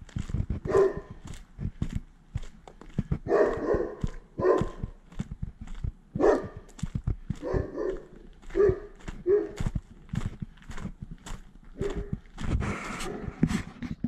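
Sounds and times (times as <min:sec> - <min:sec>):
footsteps on gravel: 0:00.0 - 0:14.0
dog barking: 0:00.6 - 0:01.2, 0:03.2 - 0:05.0, 0:06.2 - 0:06.7, 0:07.3 - 0:09.7, 0:11.8 - 0:12.2, 0:13.0 - 0:13.3.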